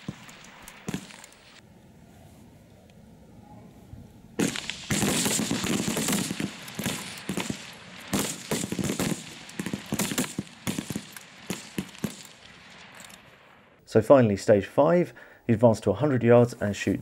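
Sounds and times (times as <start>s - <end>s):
rifle shots: 0.0s - 1.6s, 4.4s - 13.7s.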